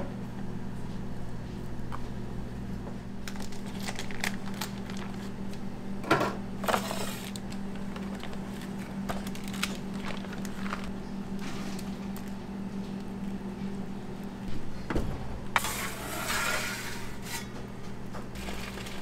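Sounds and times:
steady low hum: 0:00.0 - 0:19.0
plastic bag crinkling: 0:03.2 - 0:05.3, 0:06.8 - 0:10.9.

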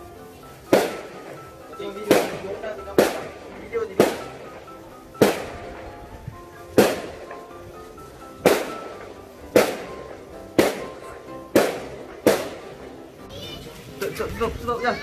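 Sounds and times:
firecrackers banging: 0:00.0 - 0:14.7
background music: 0:00.0 - 0:15.0.

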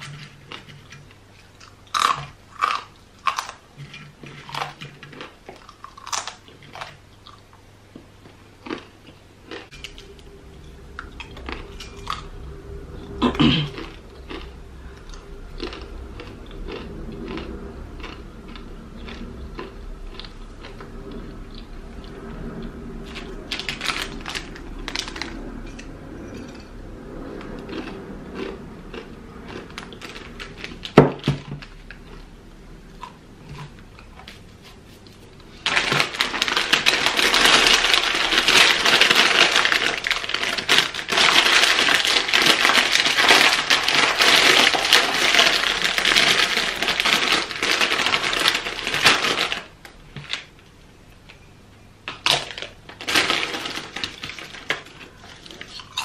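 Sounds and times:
plastic bag crinkling: 0:23.1 - 0:26.6, 0:29.5 - 0:32.2, 0:35.5 - 0:50.5, 0:52.1 - 0:56.0.

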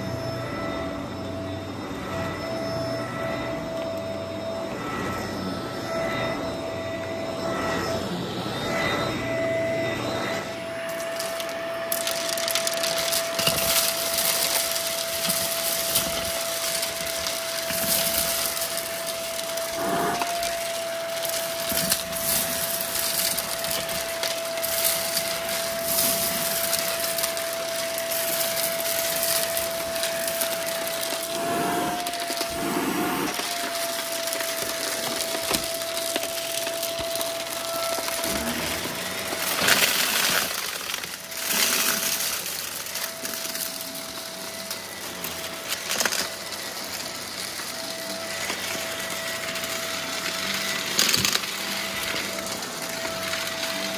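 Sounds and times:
vacuum cleaner whine: 0:00.0 - 0:53.9
debris rattling up vacuum tube: 0:10.8 - 0:53.9.

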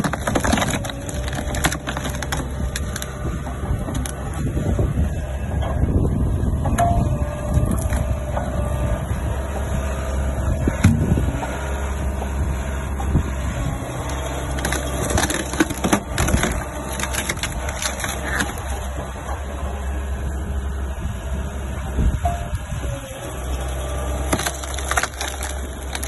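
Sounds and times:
log cracking under splitter: 0:00.0 - 0:04.5, 0:13.8 - 0:19.2, 0:23.2 - 0:26.0
diesel engine running: 0:00.0 - 0:26.0.

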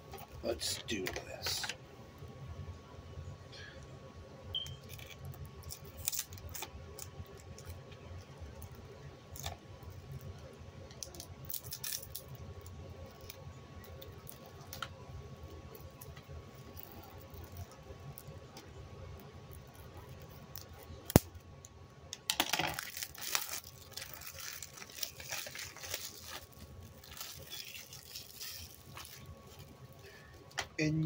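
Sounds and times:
faint steady hum: 0:00.0 - 0:31.0
plastic wrap crackling: 0:10.9 - 0:14.9, 0:15.6 - 0:18.6, 0:22.4 - 0:30.6.

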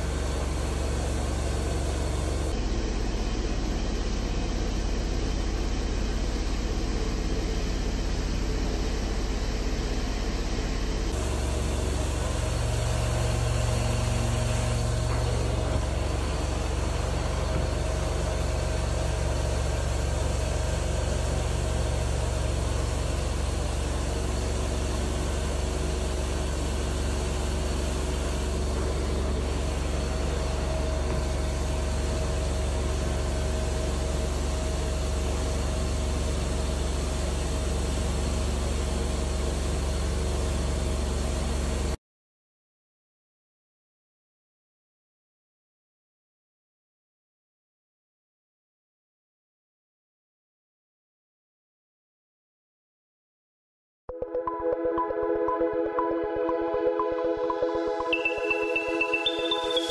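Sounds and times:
machine low hum: 0:00.0 - 0:42.0.

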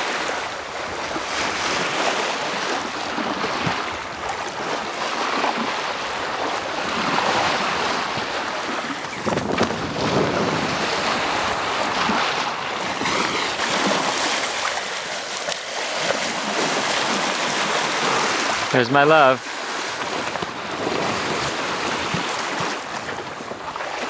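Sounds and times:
water splashing along boat hull: 0:00.0 - 0:24.0
wind on microphone: 0:00.1 - 0:14.8, 0:19.7 - 0:24.0.

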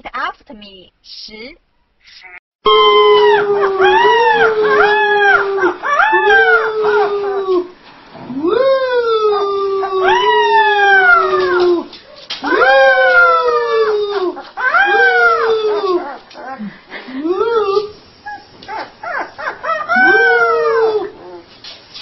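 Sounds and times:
puppy howling: 0:02.7 - 0:07.7, 0:08.3 - 0:16.6, 0:17.4 - 0:21.5.

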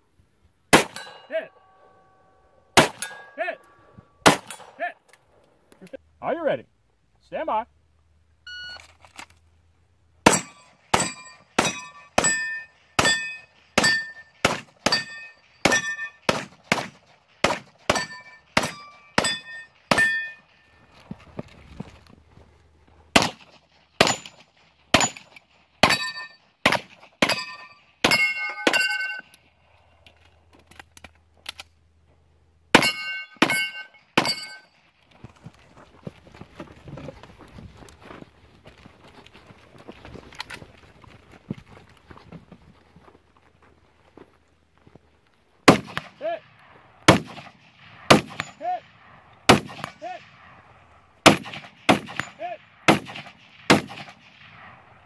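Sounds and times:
pistol firing rapidly: 0:04.2 - 0:04.6, 0:10.2 - 0:12.3, 0:47.1 - 0:48.6, 0:49.5 - 0:50.0, 0:51.2 - 0:54.4
shot timer beep: 0:08.5 - 0:08.8
steel plate ringing when hit: 0:10.3 - 0:14.3, 0:14.9 - 0:16.2, 0:17.9 - 0:20.4, 0:27.3 - 0:29.3, 0:32.8 - 0:34.7.

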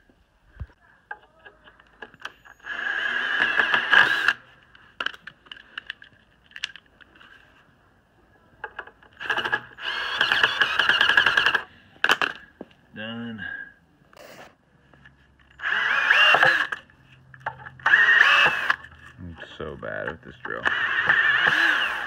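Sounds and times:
cordless drill motor whine: 0:02.2 - 0:04.4, 0:09.2 - 0:11.6, 0:15.6 - 0:16.8, 0:17.8 - 0:18.9, 0:20.6 - 0:22.0.

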